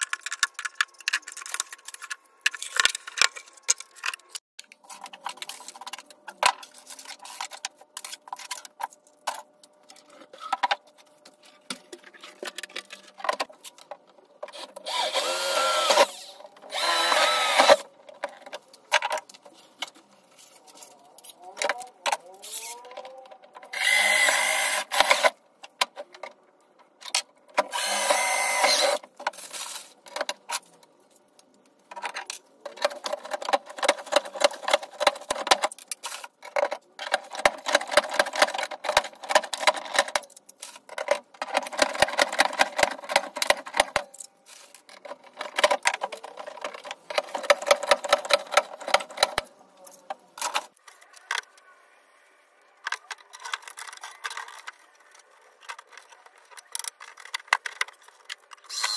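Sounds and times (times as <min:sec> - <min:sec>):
tool rapid mechanical clicking: 0:58.7 - 0:58.9.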